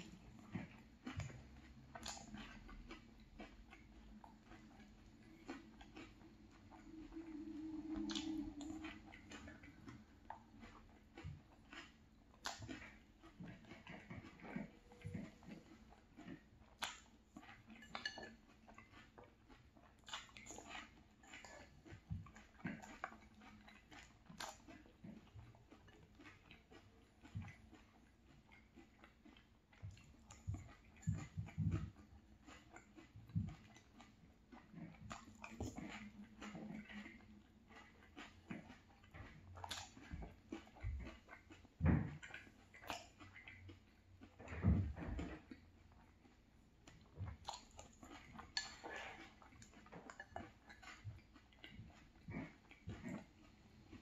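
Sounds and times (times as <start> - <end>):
faint chewing: 0.0 - 54.0.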